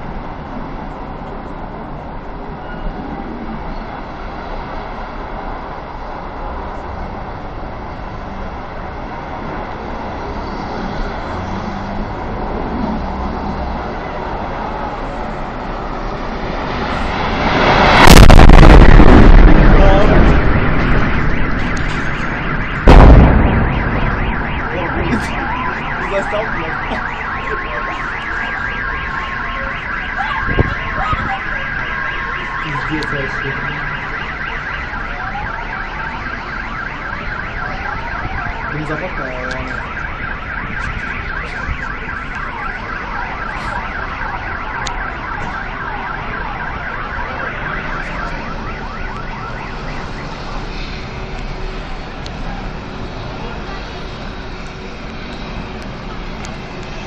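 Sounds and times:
explosion blast with rumble: 16.3 - 27.5
smaller bang: 17.8 - 26.0
car alarms wailing and beeping: 17.8 - 51.9.

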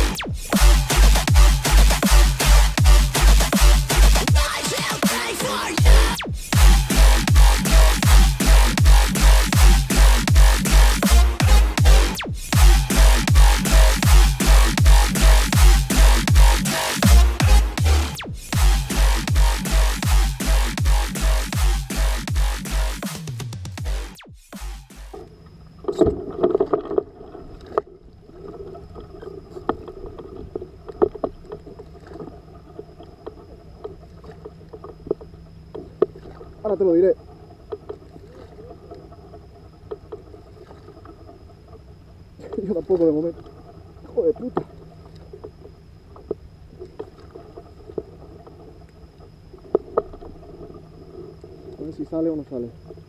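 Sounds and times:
water noise around kayak: 0.0 - 53.0
faint high whine: 25.1 - 53.0.

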